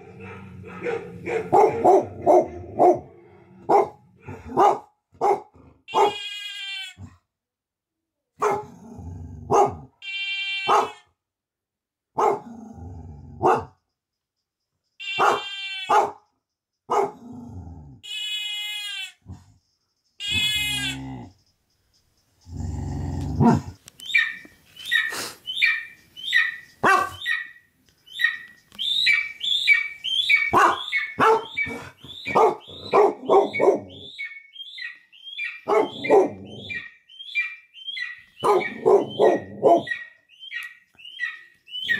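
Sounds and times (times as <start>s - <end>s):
dog barking: 0.0s - 6.2s, 8.4s - 8.7s, 9.4s - 9.9s, 10.6s - 11.1s, 12.2s - 12.5s, 13.4s - 13.8s, 15.2s - 16.3s, 16.9s - 17.2s, 23.4s - 23.8s, 26.4s - 27.5s, 30.4s - 34.1s, 35.6s - 36.9s, 38.4s - 40.2s
dog whining and yelping: 29.1s - 34.3s, 35.4s - 36.9s, 38.0s - 40.2s.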